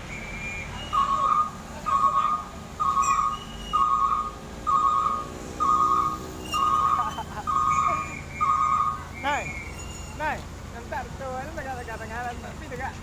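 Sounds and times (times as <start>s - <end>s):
electronic warning beeps: 0.2s - 10.2s.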